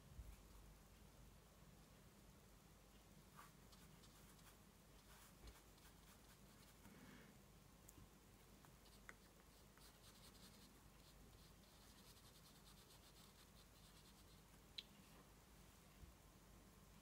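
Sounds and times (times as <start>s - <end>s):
paintbrush brushing on paper: 3.3s - 6.9s, 8.7s - 14.6s.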